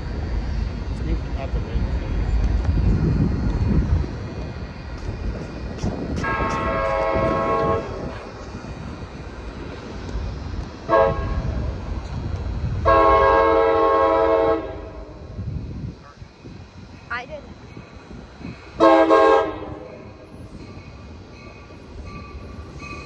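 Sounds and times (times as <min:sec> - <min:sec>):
train rumble: 0:00.0 - 0:23.0
locomotive air horn blasts: 0:06.2 - 0:08.2, 0:10.9 - 0:11.6, 0:12.8 - 0:15.1, 0:18.8 - 0:19.9.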